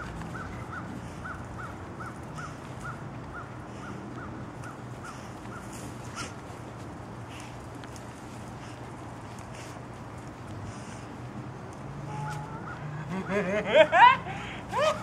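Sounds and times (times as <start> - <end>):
bird calling: 12.1 - 15.0.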